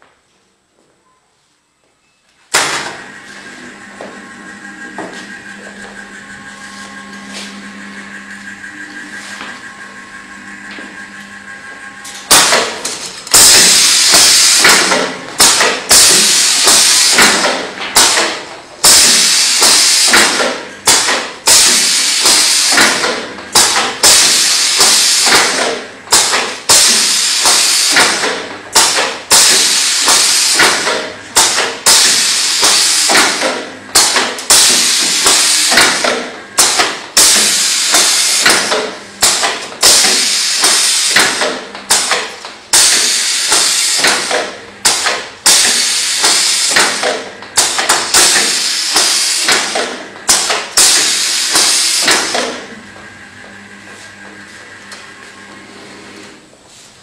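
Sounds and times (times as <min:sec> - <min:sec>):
machine hum: 0:02.4 - 0:57.0
pneumatic pushers clacking: 0:02.5 - 0:03.1, 0:12.0 - 0:53.1.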